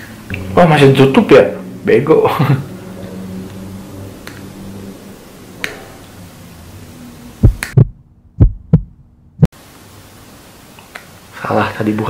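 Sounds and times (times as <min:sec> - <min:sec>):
deep heartbeat thumps: 0:07.4 - 0:09.5.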